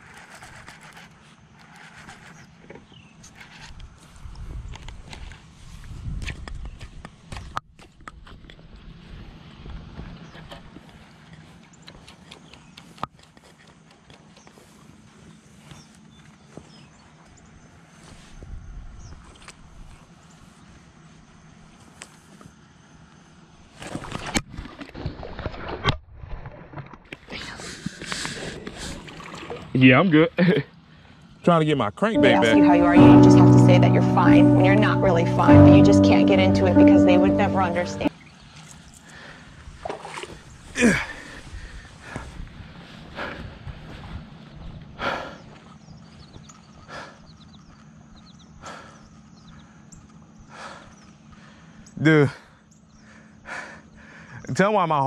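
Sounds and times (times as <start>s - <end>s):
man panting heavily: 43.1s - 43.7s, 45.0s - 45.6s, 46.9s - 47.3s, 48.6s - 49.6s, 50.5s - 54.4s.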